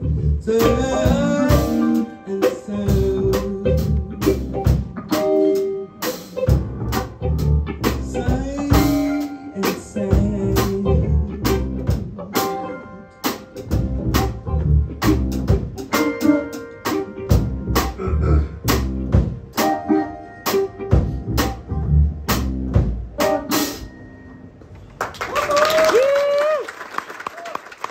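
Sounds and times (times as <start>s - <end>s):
double bass: 0.0s - 5.8s, 6.5s - 12.2s, 13.6s - 16.5s, 17.2s - 23.9s
electric guitar: 0.0s - 24.6s
grand piano: 0.0s - 24.8s
drum kit cymbal and drum strokes: 4.2s - 9.7s, 22.3s - 24.0s.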